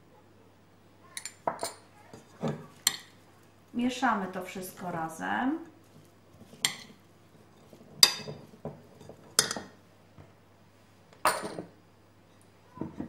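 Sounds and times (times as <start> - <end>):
metal spoon clinking on glass bowl: 1.2 - 1.8, 8.0 - 8.4, 9.0 - 9.7.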